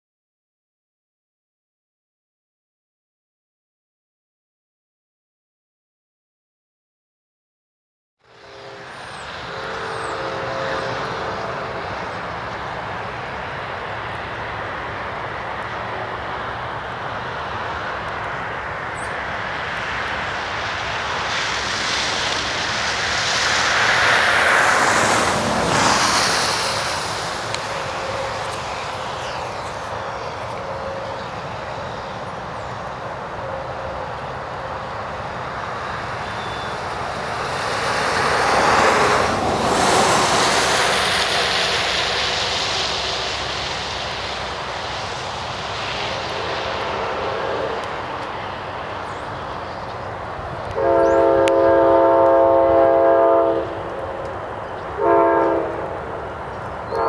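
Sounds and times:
traffic rushing on wet road: 0:08.3 - 0:57.0
vehicle passing by: 0:19.0 - 0:31.2, 0:36.8 - 0:51.4.

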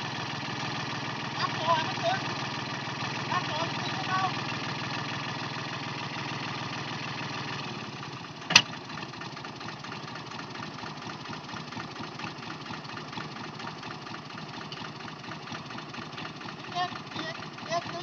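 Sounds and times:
diesel engine idling: 0:00.0 - 0:18.0
sharp clank: 0:08.5 - 0:08.8.

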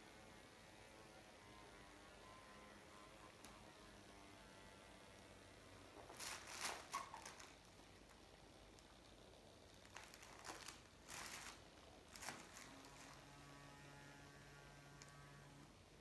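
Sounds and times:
faint electric hum: 0:00.0 - 0:16.0
faint rustles: 0:05.8 - 0:13.5.

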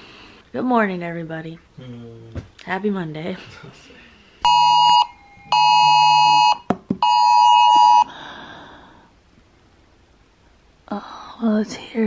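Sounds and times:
harsh alert beeps: 0:04.4 - 0:08.1.

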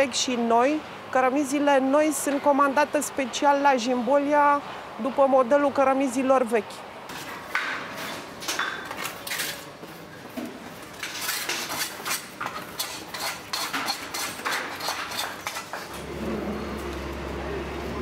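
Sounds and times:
trowel scraping and tapping mortar: 0:10.9 - 0:16.0.

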